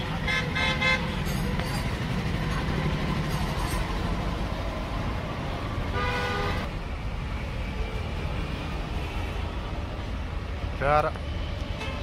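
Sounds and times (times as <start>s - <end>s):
road traffic: 0.0s - 12.0s
vehicle horn: 0.2s - 1.2s, 5.9s - 6.7s.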